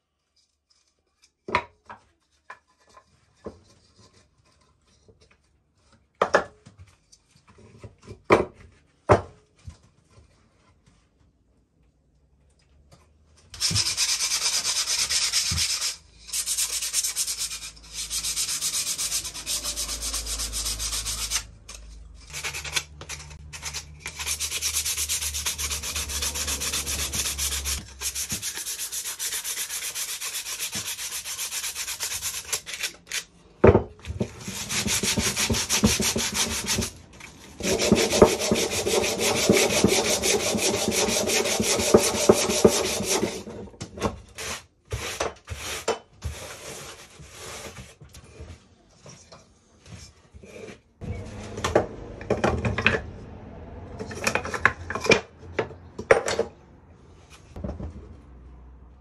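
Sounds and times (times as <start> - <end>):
sandpaper rubbing on wood: 13.6 - 21.6, 22.3 - 32.9, 34.4 - 37.0, 37.6 - 43.4.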